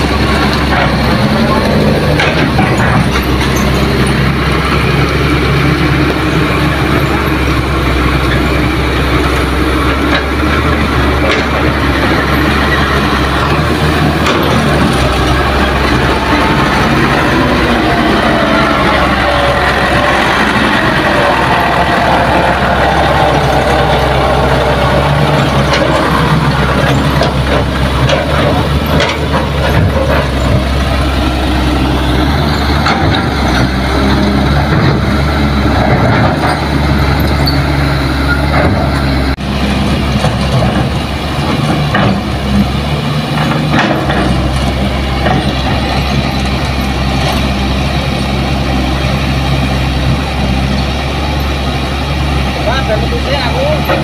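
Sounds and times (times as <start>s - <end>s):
knocks and rattles: 0.0s - 4.8s, 20.7s - 31.1s
diesel truck engine under load: 0.0s - 54.0s.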